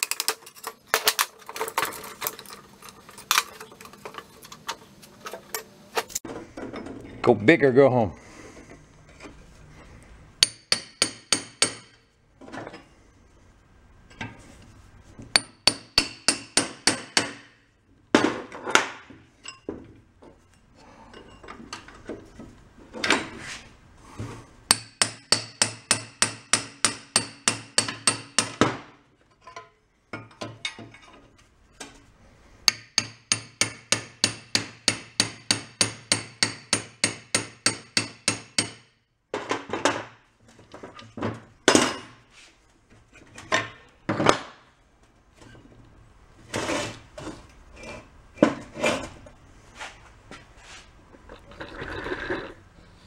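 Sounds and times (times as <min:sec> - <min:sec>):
hammer striking steel: 0:10.4 - 0:12.0, 0:15.3 - 0:17.6, 0:24.7 - 0:28.7, 0:32.7 - 0:38.9.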